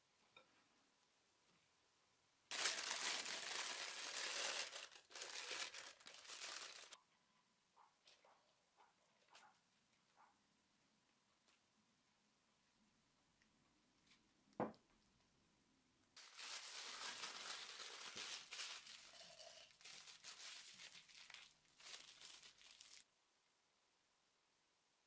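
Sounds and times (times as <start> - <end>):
paper and plastic crinkling: 2.5 - 7.0, 16.2 - 23.1.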